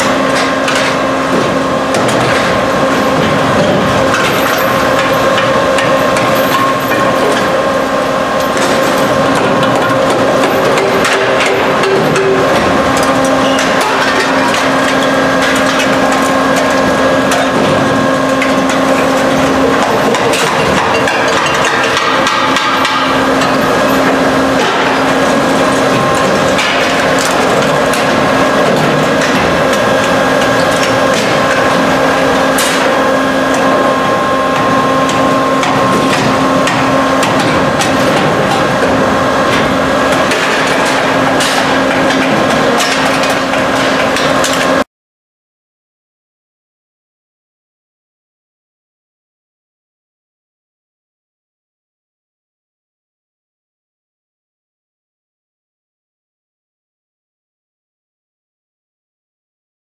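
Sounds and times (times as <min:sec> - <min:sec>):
machine humming: 0:00.0 - 0:44.9
metallic clanks and clatter: 0:08.4 - 0:44.8.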